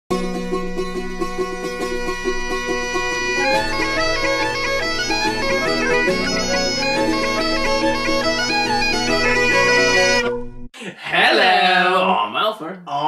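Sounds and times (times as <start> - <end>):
instrumental melody over drone: 0.5 - 10.6.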